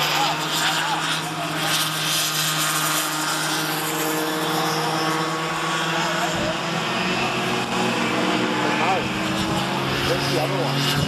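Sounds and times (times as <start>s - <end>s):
go-kart engines buzzing: 0.0s - 11.0s.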